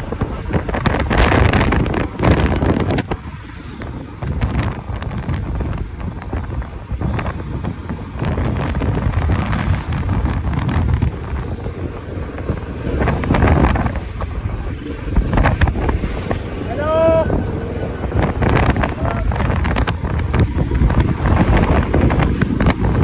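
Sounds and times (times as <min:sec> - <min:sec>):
motorcycle engine: 0:00.0 - 0:23.0
road noise: 0:00.0 - 0:23.0
wind buffeting microphone: 0:00.0 - 0:23.0.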